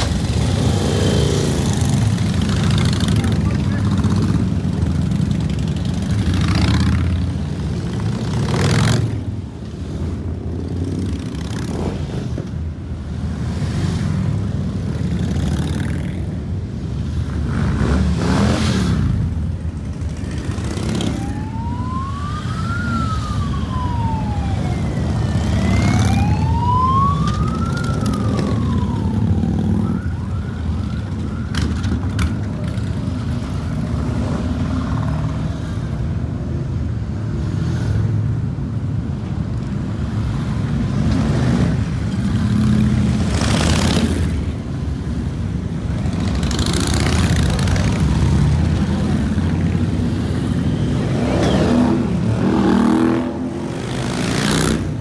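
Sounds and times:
motorcycle engines rumbling past: 0.0 - 36.1, 39.6 - 55.0
siren wailing: 20.8 - 32.2.

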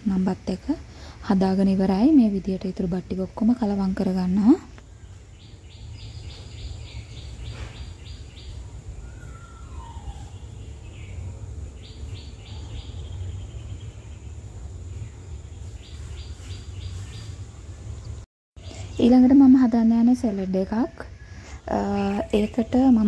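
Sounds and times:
steady low hum: 0.0 - 23.0
small bird chirping: 4.2 - 19.4
low whistled bird calls: 6.0 - 11.2.

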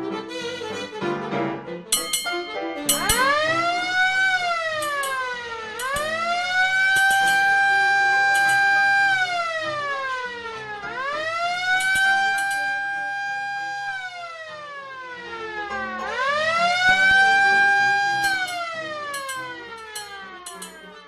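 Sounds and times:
siren-like wailing tone: 2.9 - 21.0.

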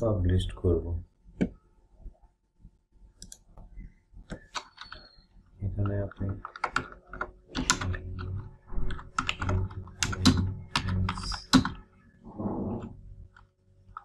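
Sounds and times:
keyboard typing: 4.2 - 11.8.

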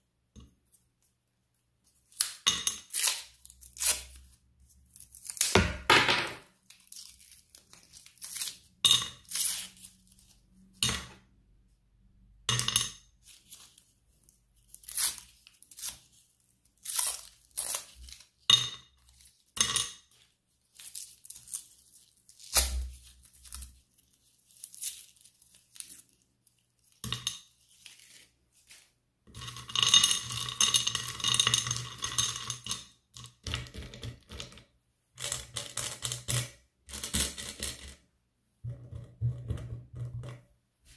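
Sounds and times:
sweet wrappers crinkling: 6.6 - 8.7, 13.3 - 27.0.

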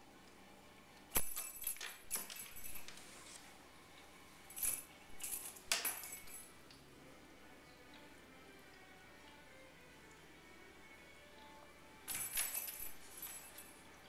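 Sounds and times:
cat toy jingling: 4.6 - 6.4, 12.1 - 13.8.

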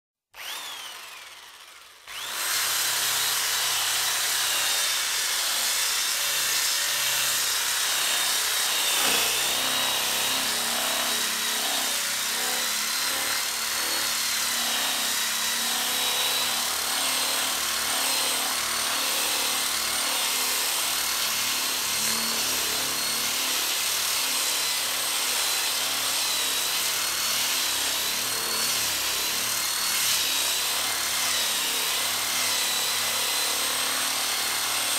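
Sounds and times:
drill motor whine: 0.4 - 34.9
sanding pad rasping on wood: 2.1 - 23.6.

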